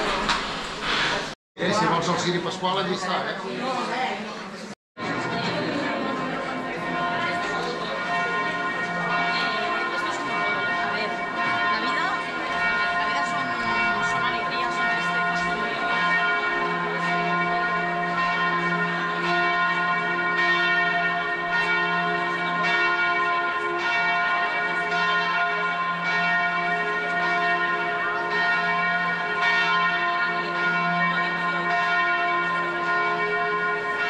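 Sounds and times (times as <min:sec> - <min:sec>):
church bells ringing: 0:05.0 - 0:34.0.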